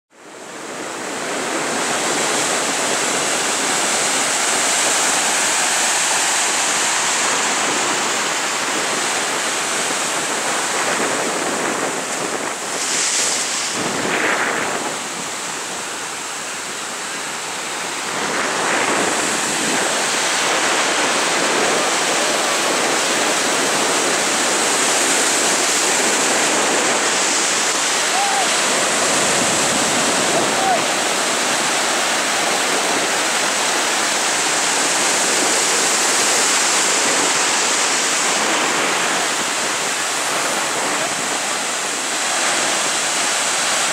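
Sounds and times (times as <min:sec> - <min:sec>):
ocean waves breaking: 0:00.2 - 0:43.9.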